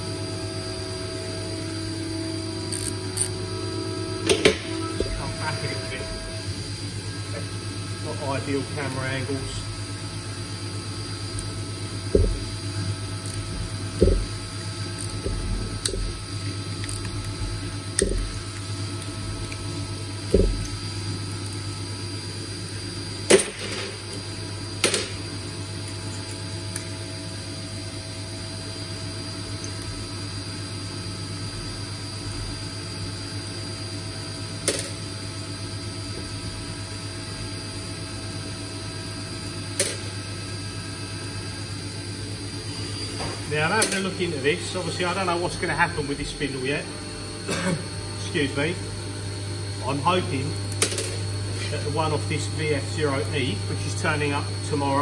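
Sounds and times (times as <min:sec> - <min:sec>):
low hum: 0:00.0 - 0:30.2.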